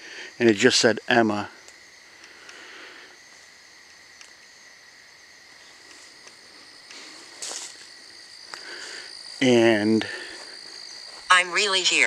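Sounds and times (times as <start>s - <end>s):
crickets and insects trilling: 0.0s - 12.0s
rustling crunch: 5.6s - 11.3s.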